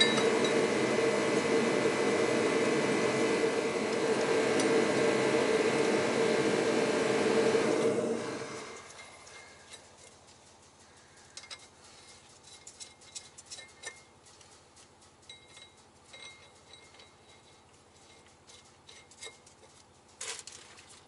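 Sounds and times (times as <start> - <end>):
light metallic clinks and taps: 0.0 - 0.6, 8.8 - 21.0.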